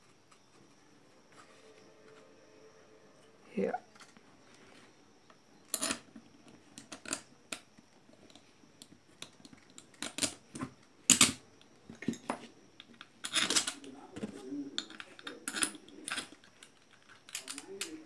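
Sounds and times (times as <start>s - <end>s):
metal tool clicking and scraping: 14.8s - 18.0s.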